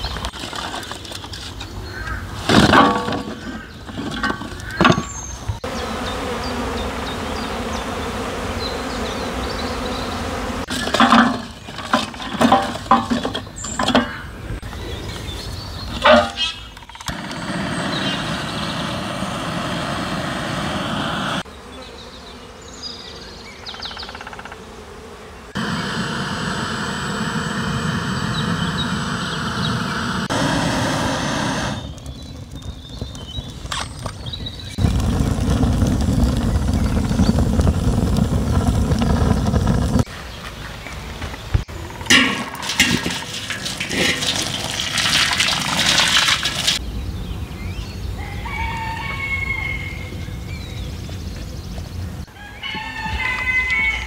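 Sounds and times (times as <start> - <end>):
wooden sticks clattering on metal: 10.7 - 14.2, 42.1 - 46.8
deep steady rushing noise: 17.2 - 21.4, 25.6 - 32.2, 34.8 - 40.1.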